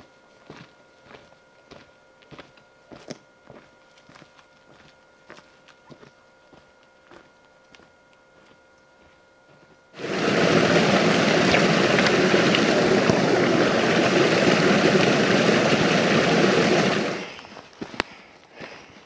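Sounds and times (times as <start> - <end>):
creek water running over rocks: 10.0 - 17.3.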